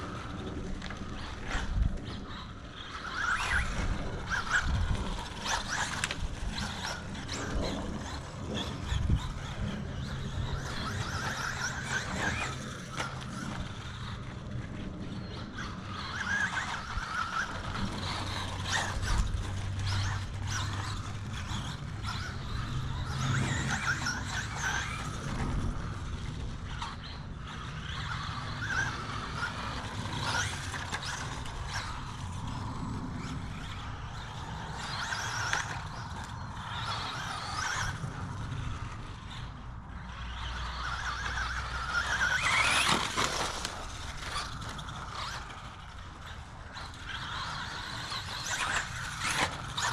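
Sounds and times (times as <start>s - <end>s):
electric motor whining: 0.0s - 49.9s.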